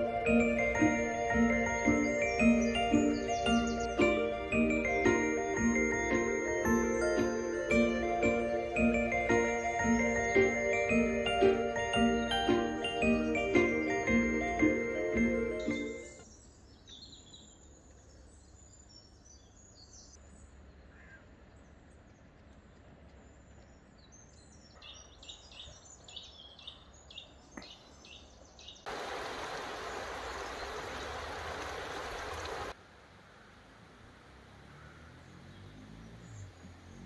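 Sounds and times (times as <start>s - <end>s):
music: 0.0s - 16.2s
small birds chirping: 0.0s - 32.8s, 34.7s - 37.0s.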